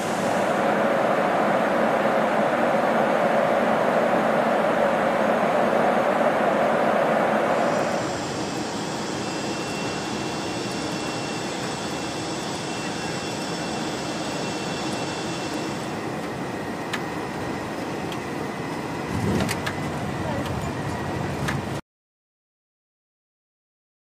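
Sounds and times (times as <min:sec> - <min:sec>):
air rush: 0:00.0 - 0:16.8
high turbine whine: 0:00.0 - 0:21.8
jet engine and airflow noise: 0:00.0 - 0:21.8.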